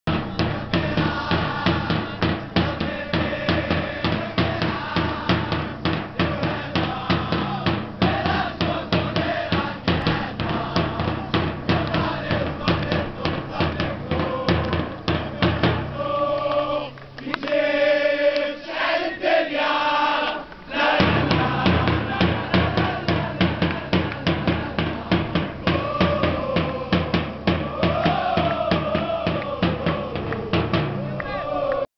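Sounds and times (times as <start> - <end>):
fast drumming: 0.0 - 16.6, 20.8 - 31.4
supporters chanting in unison: 0.1 - 31.9.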